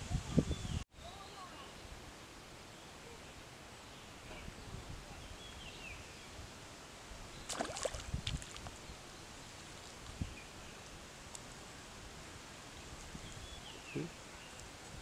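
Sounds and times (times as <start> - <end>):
outdoor background noise: 0.0 - 15.0
water splashing: 7.4 - 8.8.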